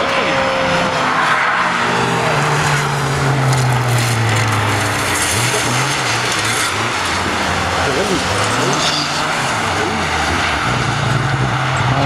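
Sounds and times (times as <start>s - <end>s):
racing car engine: 0.0s - 12.0s
gravel spraying from tyres: 2.8s - 9.6s.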